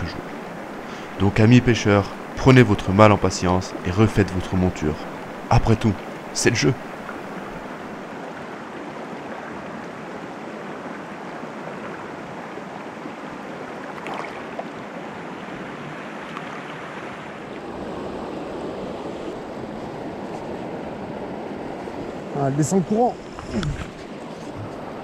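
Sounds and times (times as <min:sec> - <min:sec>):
fish splashing in water: 0:13.8 - 0:14.7.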